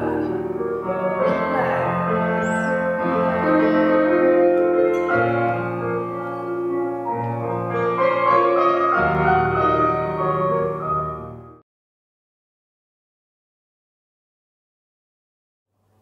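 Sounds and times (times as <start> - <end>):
piano playing slow chords: 0.0 - 11.6.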